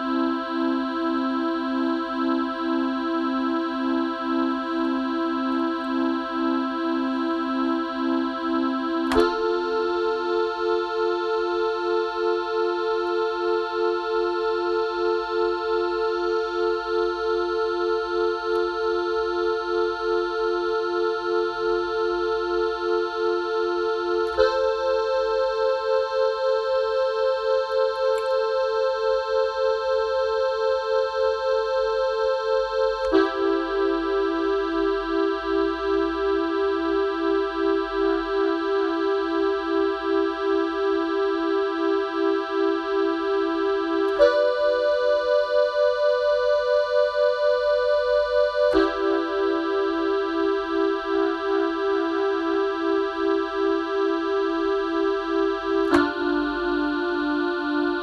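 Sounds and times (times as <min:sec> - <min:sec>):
pulsing electronic keyboard chords: 0:00.0 - 0:58.0
click: 0:09.0 - 0:09.6, 0:18.5 - 0:18.7, 0:27.7 - 0:28.5, 0:55.8 - 0:56.4.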